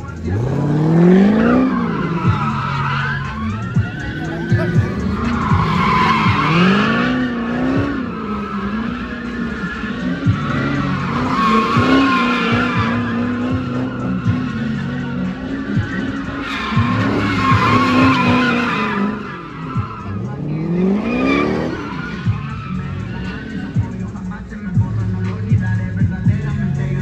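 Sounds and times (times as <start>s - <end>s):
car engine revving: 0.0s - 27.0s
tires squealing on asphalt: 0.0s - 27.0s.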